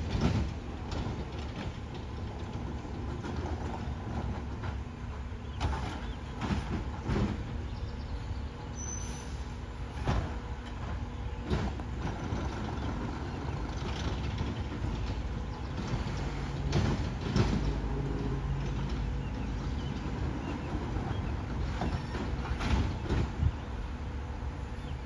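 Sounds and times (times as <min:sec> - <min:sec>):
garbage truck rumbling: 0:00.0 - 0:25.0
sharp clunks and knocks: 0:05.6 - 0:07.7, 0:10.0 - 0:13.1, 0:13.7 - 0:18.0, 0:21.7 - 0:23.5.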